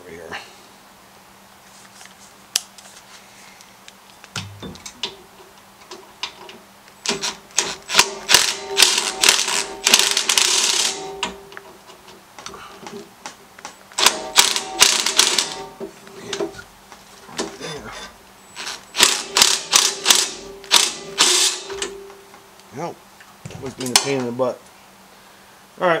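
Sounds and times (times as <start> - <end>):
impact driver hammering bolts: 5.9 - 12.2, 12.9 - 16.5, 18.6 - 22.0.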